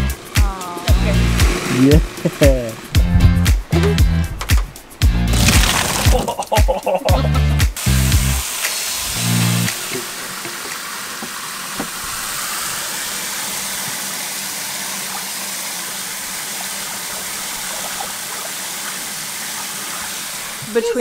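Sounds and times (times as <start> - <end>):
water running: 5.3 - 21.0.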